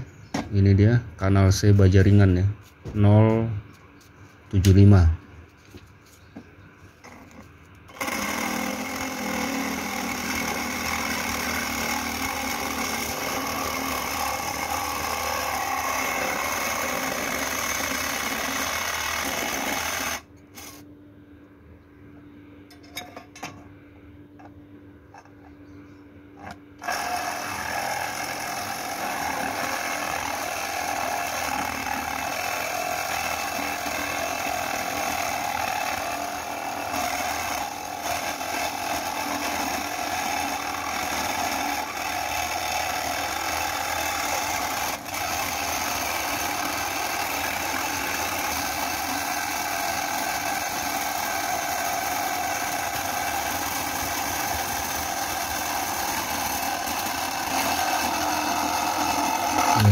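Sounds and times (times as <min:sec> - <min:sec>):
reciprocating saw cutting metal: 0:26.8 - 0:59.9.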